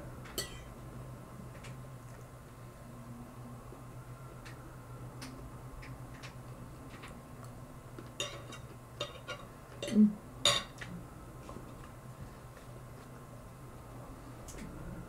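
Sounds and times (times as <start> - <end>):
steady low hum: 0.0 - 15.0
fork clinking on plate: 0.4 - 0.7.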